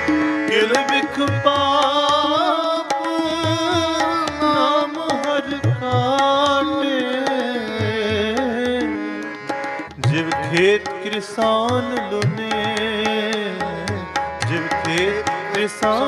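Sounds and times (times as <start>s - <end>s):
harmonium: 0.0s - 16.0s
tabla strokes: 0.0s - 16.0s
person singing melodic phrase: 0.5s - 9.0s.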